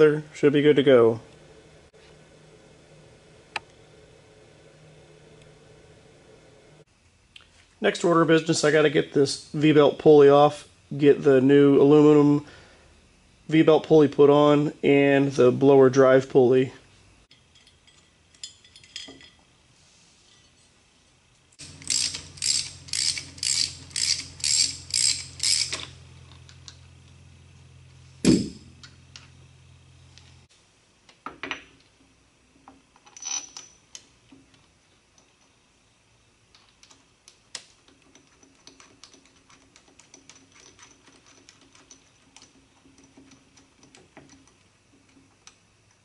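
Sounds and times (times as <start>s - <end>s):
steady low hum: 0.0s - 30.9s
light metal clicks and clinks: 17.3s - 19.5s
socket ratchet clicking: 21.6s - 26.7s
loud thump: 28.2s - 28.7s.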